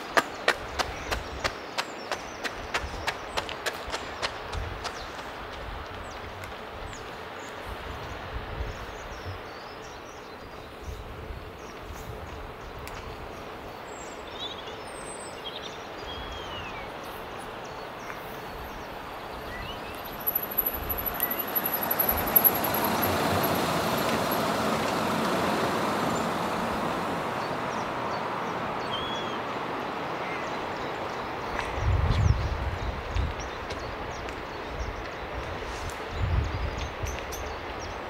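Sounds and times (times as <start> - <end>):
birds chirping: 0.0 - 35.5
vehicle passing: 19.9 - 30.2.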